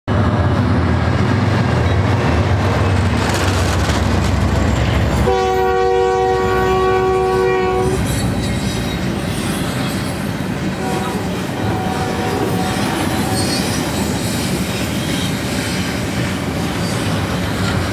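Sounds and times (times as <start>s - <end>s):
diesel locomotives rumbling: 0.1s - 17.9s
train wheels on rails: 0.1s - 17.9s
multi-tone train horn blast: 4.8s - 8.2s, 10.7s - 13.7s.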